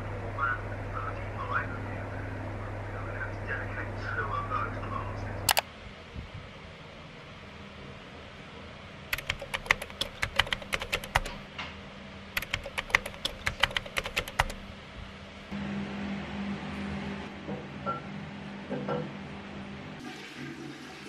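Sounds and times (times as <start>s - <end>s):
steady low hum: 0.0s - 17.4s
keyboard key clicks: 9.2s - 11.4s, 12.4s - 14.6s.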